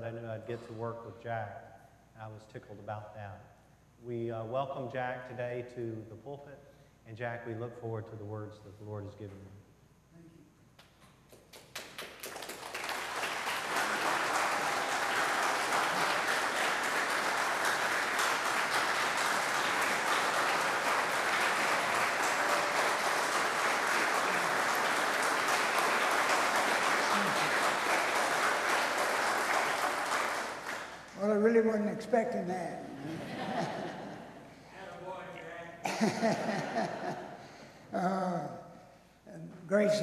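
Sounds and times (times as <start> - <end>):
congregation applauding: 11.4 - 31.6.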